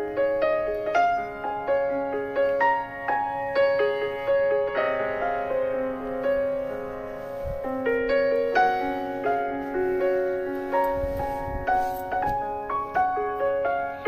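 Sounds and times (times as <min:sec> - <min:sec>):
piano notes and chords ringing: 0:00.0 - 0:14.0.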